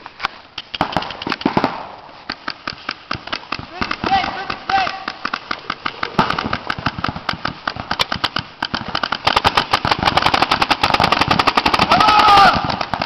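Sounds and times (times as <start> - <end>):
paintball markers firing: 0.2 - 13.0.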